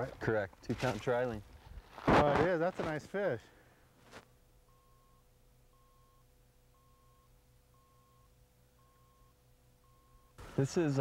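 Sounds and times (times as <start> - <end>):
faint steady hum: 0.0 - 11.0
faint electronic beeps: 4.6 - 11.0.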